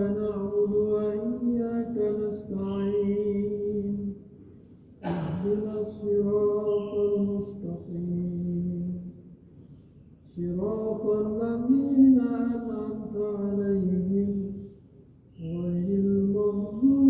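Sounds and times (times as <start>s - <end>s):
man chanting: 0.0s - 4.2s, 5.0s - 9.1s, 10.3s - 14.7s.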